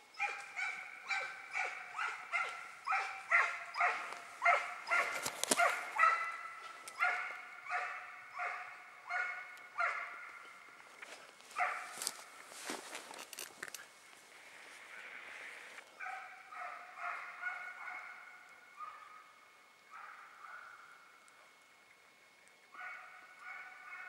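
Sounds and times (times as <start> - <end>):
dog barking: 0.2 - 10.4, 11.6 - 12.2, 16.0 - 19.3, 19.9 - 20.8, 22.8 - 24.0.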